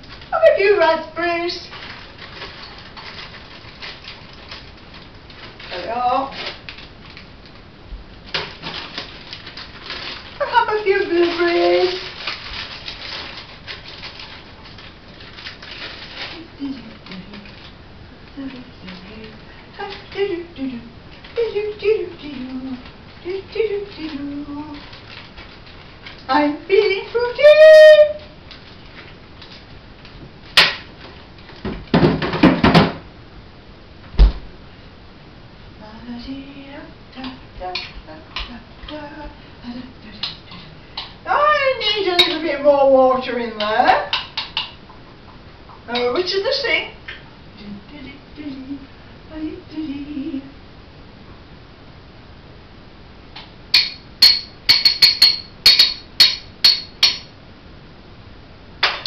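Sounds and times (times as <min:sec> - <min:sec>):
freezer door shutting thump: 0:34.2 - 0:34.5
spoon clinking against bowl: 0:53.8 - 0:57.3.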